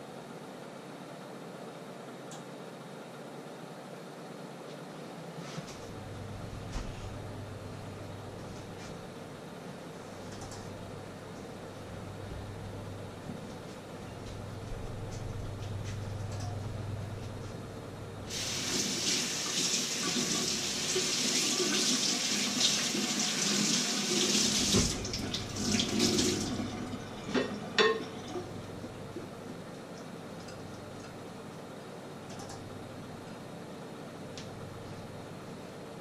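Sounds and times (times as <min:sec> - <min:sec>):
tap running into sink: 0:24.1 - 0:26.5.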